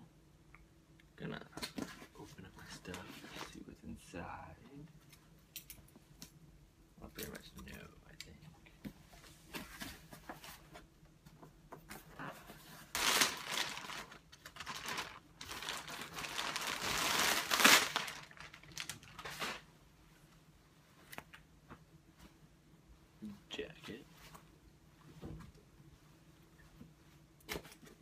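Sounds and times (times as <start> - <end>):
plastic bag crinkling and tearing: 12.9 - 19.7.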